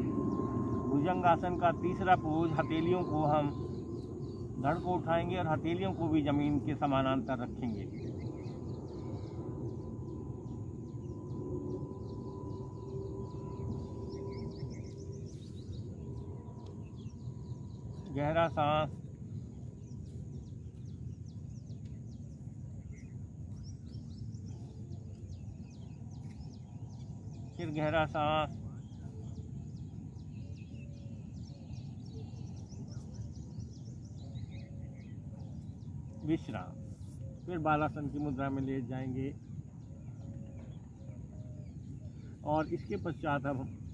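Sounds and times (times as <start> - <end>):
low background rumble: 0.0 - 27.8
small birds chirping: 0.0 - 43.9.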